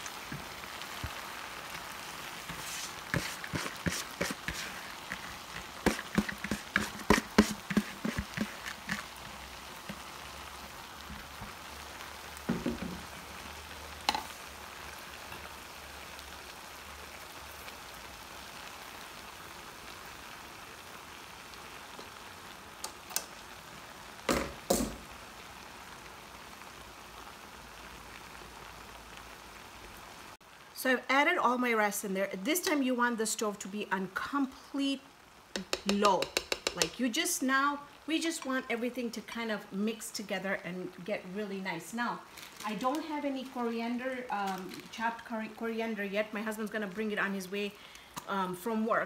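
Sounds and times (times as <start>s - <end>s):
gravy sizzling in pot: 0.0s - 49.0s
spoon knocking against pot: 35.6s - 37.0s.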